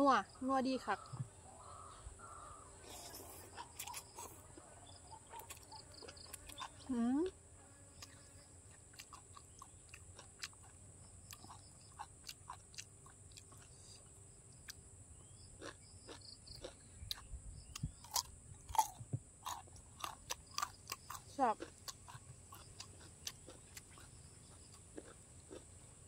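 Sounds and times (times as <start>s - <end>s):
chewing crisp raw vegetables: 2.8s - 6.9s, 8.0s - 26.0s
biting into raw carrot: 2.9s - 4.4s.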